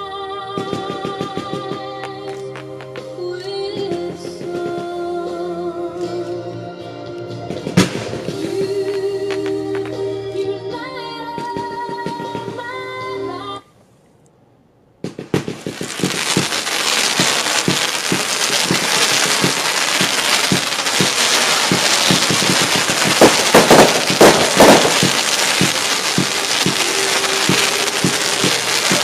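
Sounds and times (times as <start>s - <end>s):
firework launch shots: 7.5s - 10.0s, 15.0s - 29.0s
crackling hiss of comet tails: 7.6s - 10.5s, 15.2s - 29.0s.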